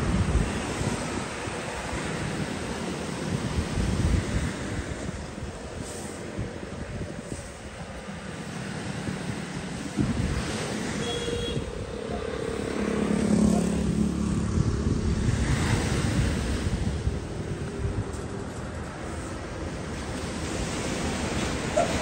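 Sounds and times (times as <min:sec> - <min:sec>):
surf: 0:00.0 - 0:22.0
wind buffeting microphone: 0:00.0 - 0:22.0
motorbike passing: 0:08.9 - 0:22.0.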